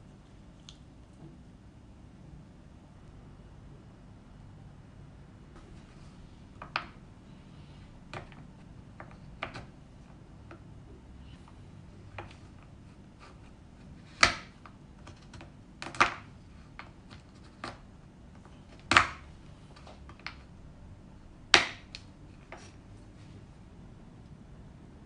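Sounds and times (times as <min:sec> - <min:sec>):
knife chopping chocolate on board: 0:14.0 - 0:17.8, 0:18.7 - 0:19.3, 0:21.5 - 0:22.6.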